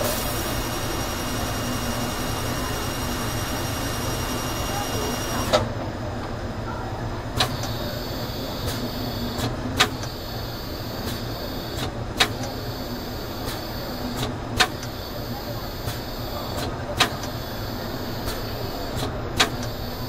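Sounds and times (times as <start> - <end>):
high machine whine: 0.0 - 20.0
lathe mechanical hum: 0.0 - 20.0
sharp mechanical clicks: 13.4 - 15.0, 15.8 - 17.4, 18.2 - 20.0.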